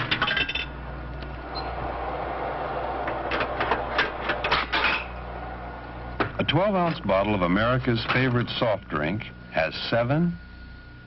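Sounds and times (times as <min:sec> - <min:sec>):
clattering mechanical noise: 0:00.0 - 0:09.4.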